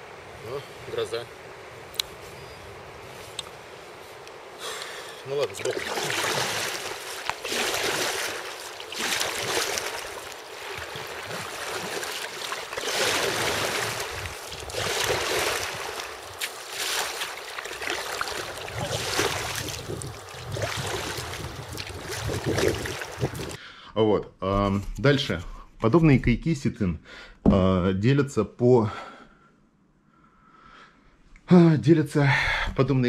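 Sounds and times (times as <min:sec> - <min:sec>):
wind: 0:00.0 - 0:33.0
water rushing: 0:03.4 - 0:23.6.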